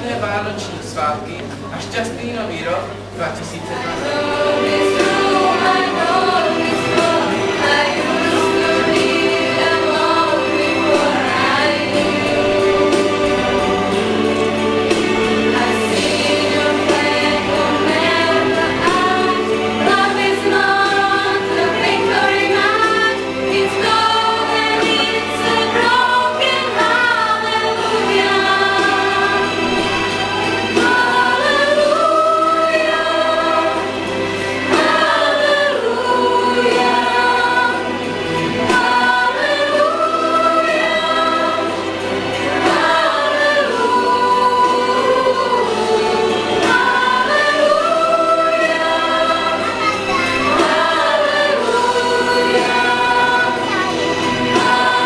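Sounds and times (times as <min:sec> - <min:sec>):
girls' choir singing: 0:03.6 - 0:55.0.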